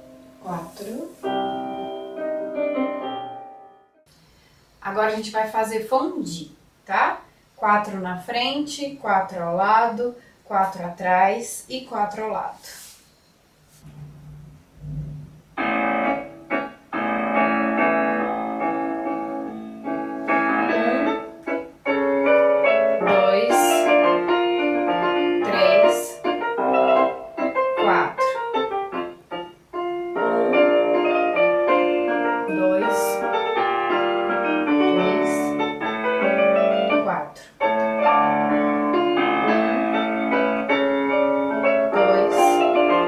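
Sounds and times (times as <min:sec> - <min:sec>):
slow piano phrases: 0:00.0 - 0:04.1, 0:13.7 - 0:43.0.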